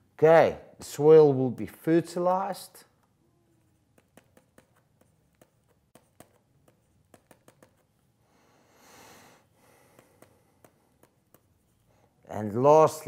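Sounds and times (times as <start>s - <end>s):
stylus tapping on tablet: 3.9s - 7.9s, 9.9s - 11.6s.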